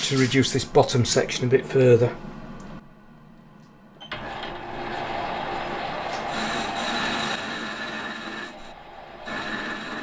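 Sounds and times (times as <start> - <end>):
metal lathe cutting: 4.2 - 10.0.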